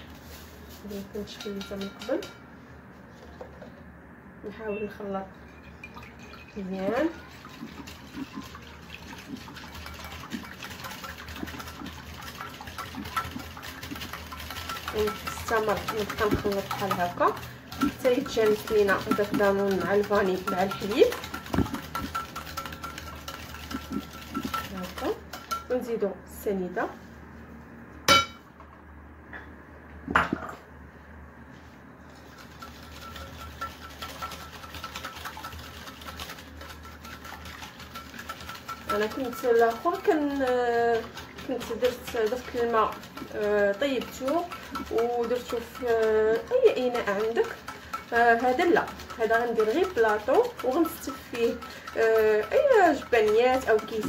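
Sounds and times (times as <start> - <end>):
liquid sloshing: 5.3 - 25.6, 32.2 - 54.0
whisk clicking against glass: 9.6 - 25.7, 32.5 - 54.0.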